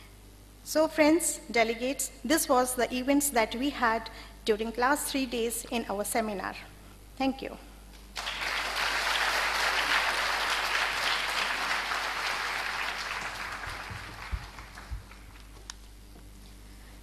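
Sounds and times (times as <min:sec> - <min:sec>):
audience applause: 0:08.2 - 0:15.7.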